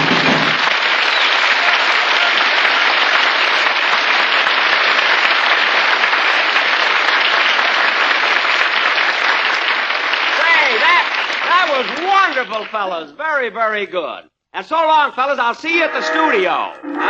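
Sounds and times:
audience applauding: 0.0 - 13.1.

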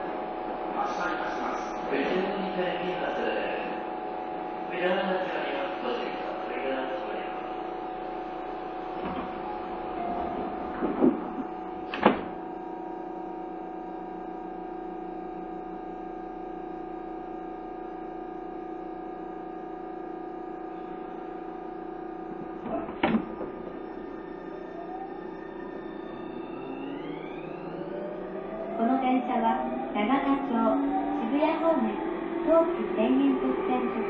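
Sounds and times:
train whining tones: 0.0 - 14.4, 22.4 - 34.0
train rumbling: 8.5 - 12.8, 22.3 - 34.0.

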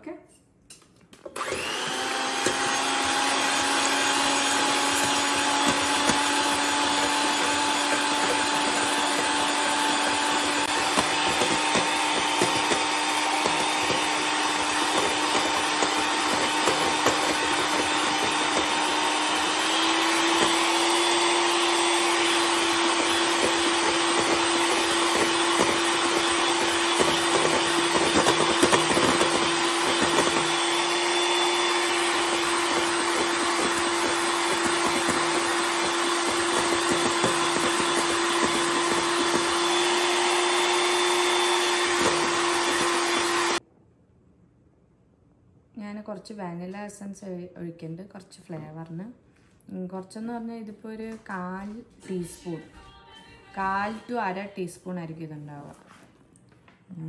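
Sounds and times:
electric hand mixer whining: 1.3 - 43.6.

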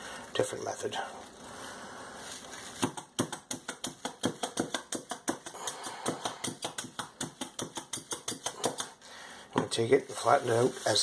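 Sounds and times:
meat tenderizer pounding chicken: 2.8 - 8.9.

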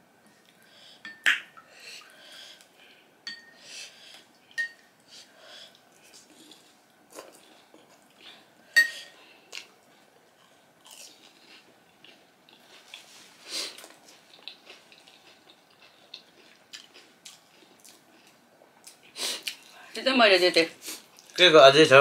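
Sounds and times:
spoon clinking on porcelain bowl: 3.3 - 3.6, 4.6 - 4.8, 8.8 - 9.1
chewing and crunching: 9.5 - 19.8.

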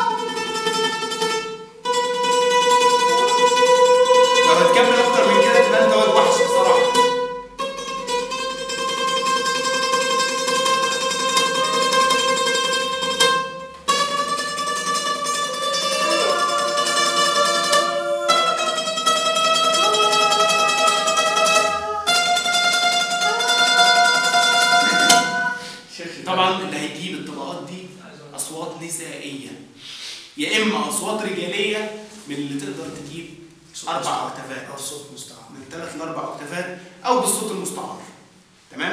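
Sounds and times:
oud playing slow rising scale: 0.0 - 25.9.

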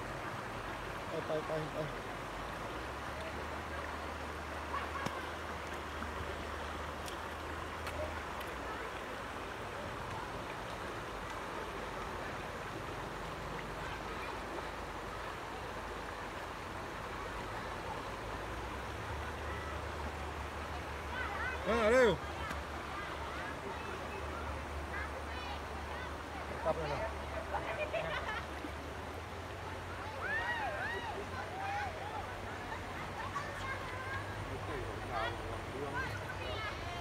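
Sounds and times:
stream flowing: 0.0 - 37.0.

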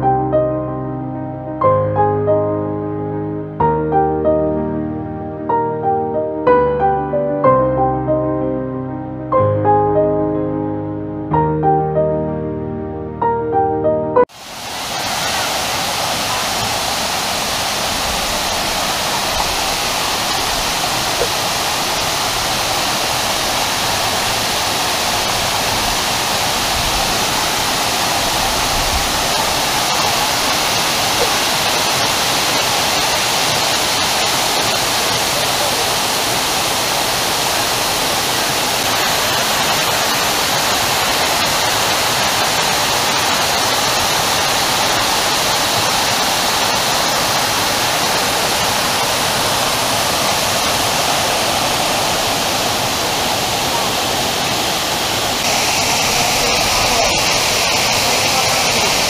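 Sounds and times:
waterfall pouring: 14.3 - 59.0.

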